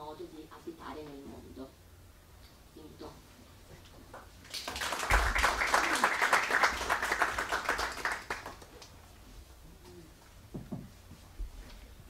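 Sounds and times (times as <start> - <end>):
audience applauding: 4.4 - 8.9.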